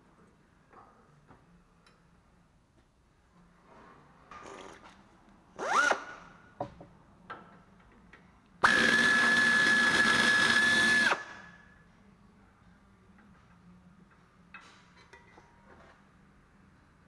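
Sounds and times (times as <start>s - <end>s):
air ratchet whining: 8.6s - 11.4s.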